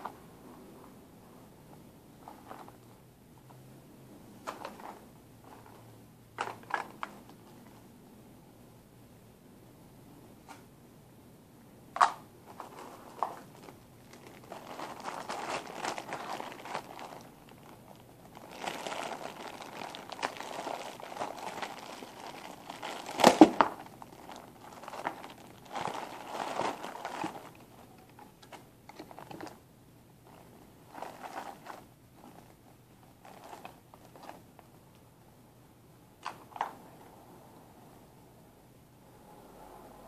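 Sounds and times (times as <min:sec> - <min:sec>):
plastic bag crinkling: 0:12.4 - 0:29.6, 0:30.2 - 0:34.7
sharp crack: 0:23.1 - 0:23.8.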